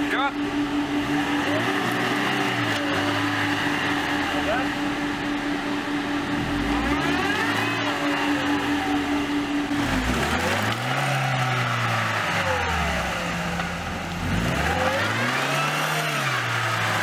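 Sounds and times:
car engine revving: 0:00.0 - 0:17.0.

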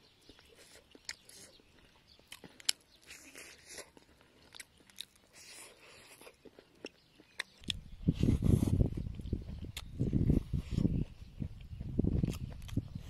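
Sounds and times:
crunchy fried fish chewing: 0:00.0 - 0:13.0.

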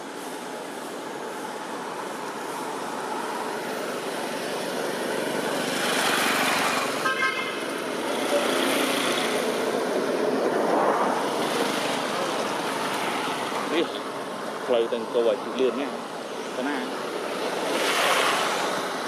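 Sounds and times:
road traffic rushing by: 0:00.0 - 0:19.0
stuttering car horn toot: 0:07.0 - 0:07.6.

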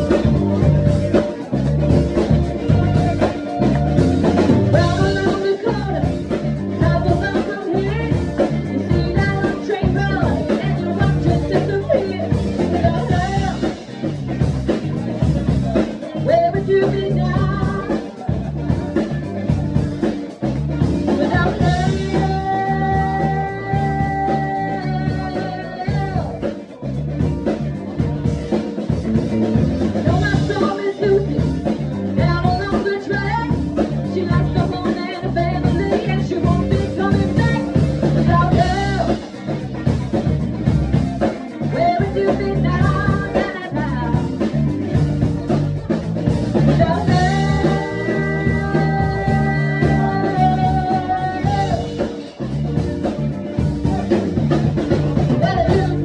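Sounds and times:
woman singing lead vocal: 0:00.0 - 0:26.8, 0:29.8 - 0:52.6, 0:54.8 - 0:56.0
live funk-rock band: 0:00.0 - 0:56.0.

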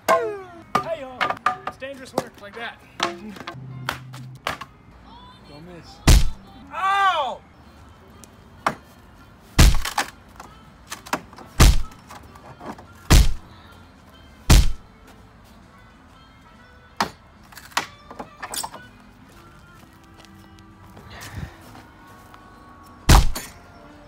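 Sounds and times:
wooden pallet cracking thuds: 0:06.1 - 0:06.4, 0:09.6 - 0:10.1, 0:11.0 - 0:12.0, 0:13.1 - 0:13.4, 0:14.5 - 0:14.8, 0:23.1 - 0:23.5.

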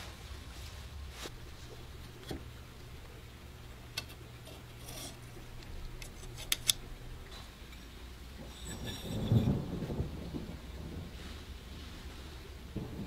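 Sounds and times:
low steady hum: 0:00.0 - 0:13.0
small metal parts clicking: 0:04.8 - 0:06.8.

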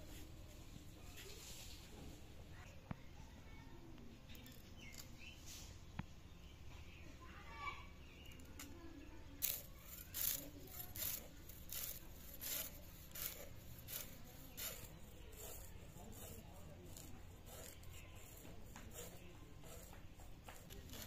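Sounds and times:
fish skin scraping on blade: 0:09.4 - 0:21.0.

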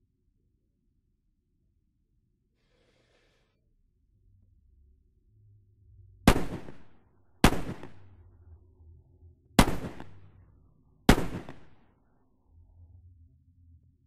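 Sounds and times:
handgun shots: 0:06.3 - 0:08.1, 0:09.6 - 0:10.3, 0:11.1 - 0:11.8.

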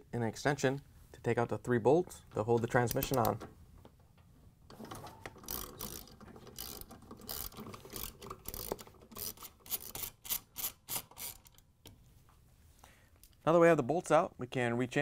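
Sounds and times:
ratchet wrench clicking: 0:05.5 - 0:11.6.

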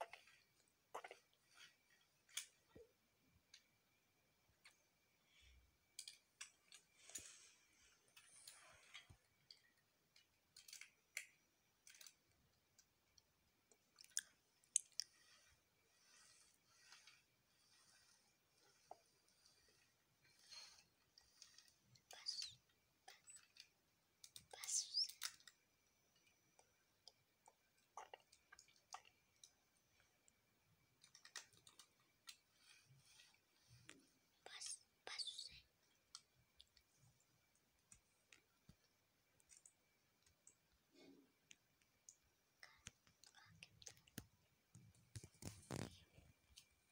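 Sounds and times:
soft rustling: 0:42.7 - 0:46.9.

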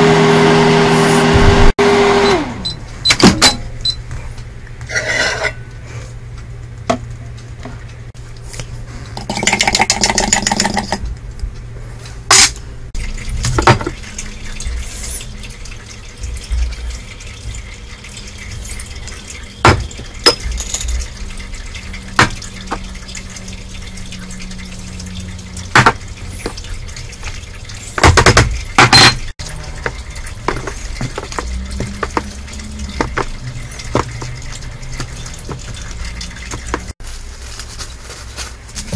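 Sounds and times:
liquid pouring: 0:12.9 - 0:37.0
containers and utensils knocking: 0:25.7 - 0:26.6, 0:28.0 - 0:35.8.

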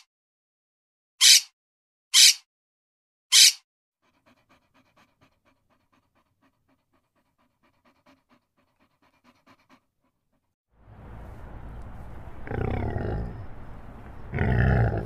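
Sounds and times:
small dog panting rapidly: 0:04.0 - 0:10.6.

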